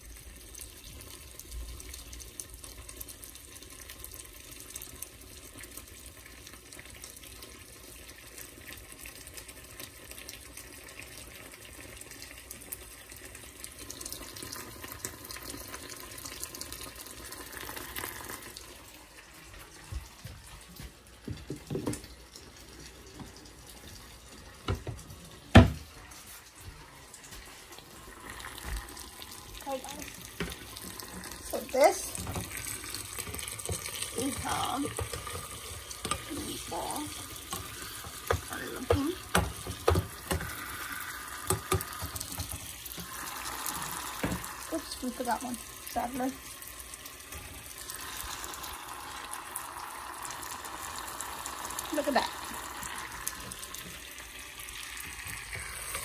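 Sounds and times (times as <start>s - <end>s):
food sizzling in oil: 0.0s - 56.0s.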